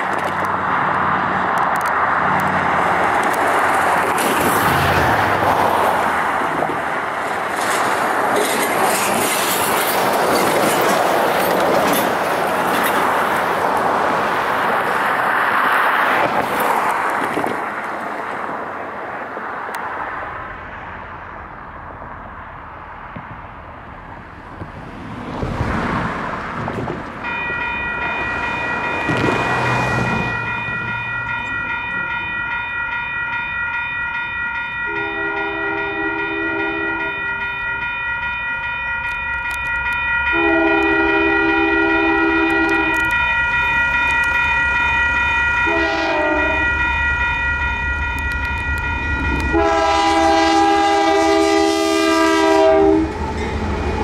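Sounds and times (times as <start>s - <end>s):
railroad crossing bells ringing: 0.0s - 16.0s, 27.2s - 54.0s
low rumble of train: 0.0s - 54.0s
locomotive air horn blasts: 34.9s - 37.3s, 40.3s - 43.2s, 45.6s - 46.8s, 49.4s - 53.1s.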